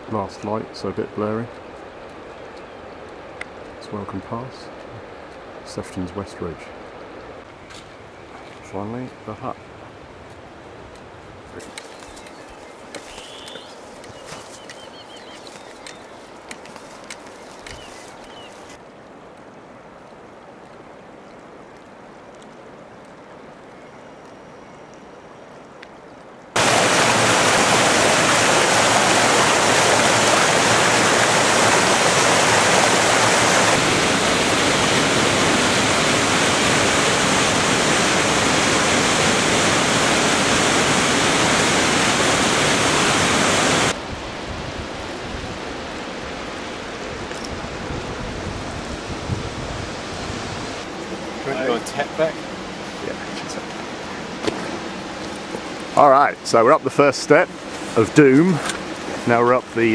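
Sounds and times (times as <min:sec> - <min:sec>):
rushing mountain creek: 0:00.0 - 0:23.7, 0:26.2 - 0:59.9.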